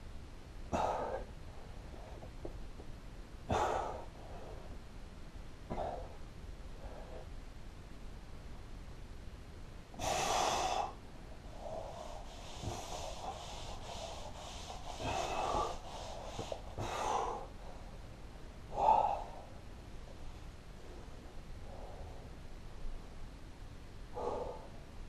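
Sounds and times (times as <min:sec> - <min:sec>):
man breathing hard: 0:00.7 - 0:02.3, 0:03.5 - 0:04.8, 0:05.7 - 0:07.4, 0:10.0 - 0:18.0, 0:18.7 - 0:19.6, 0:24.1 - 0:25.0.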